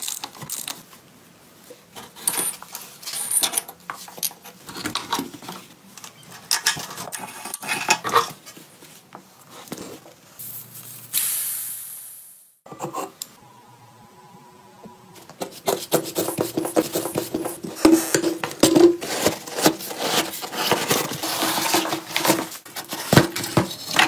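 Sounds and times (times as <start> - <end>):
hiss: 10.4 - 12.6.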